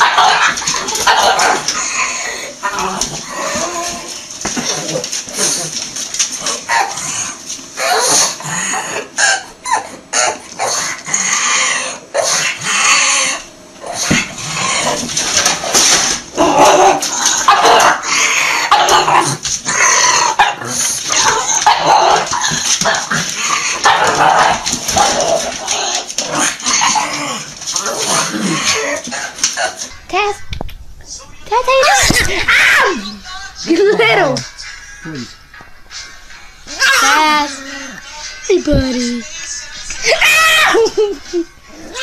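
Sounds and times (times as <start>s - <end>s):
dog barking and yapping: 0.0s - 1.9s, 16.5s - 18.0s, 20.1s - 23.0s, 23.7s - 27.2s.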